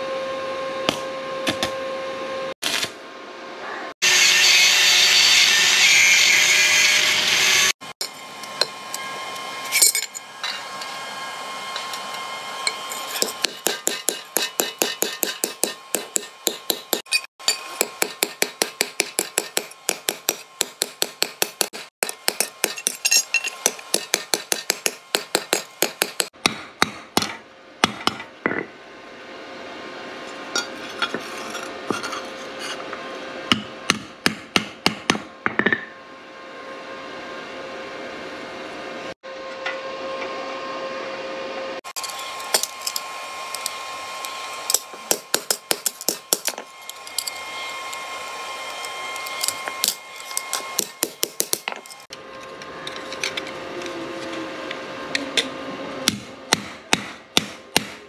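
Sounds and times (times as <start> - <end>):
hammer striking thin steel: 12.6 - 28.7, 42.0 - 43.7, 44.3 - 47.5, 49.2 - 52.1, 56.1 - 58.0.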